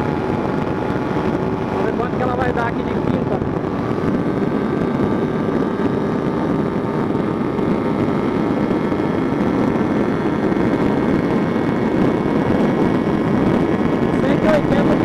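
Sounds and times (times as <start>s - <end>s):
heavy wind rush: 0.0s - 15.0s
motorcycle engine at high revs: 0.0s - 15.0s.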